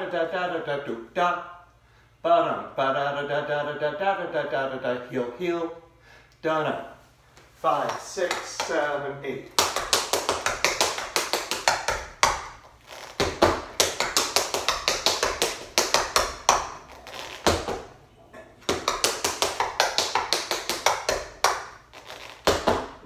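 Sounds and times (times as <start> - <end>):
tap shoes on wooden mat: 9.5 - 17.9, 18.6 - 23.0.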